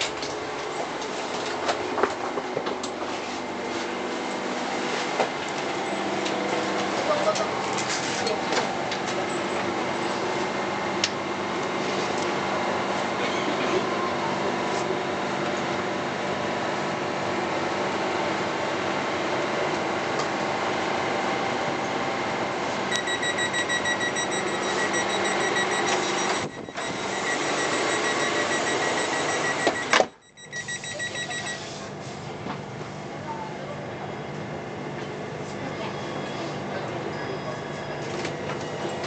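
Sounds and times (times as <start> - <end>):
train car running noise: 0.0 - 39.0
rapid electronic door beeping: 22.9 - 31.8.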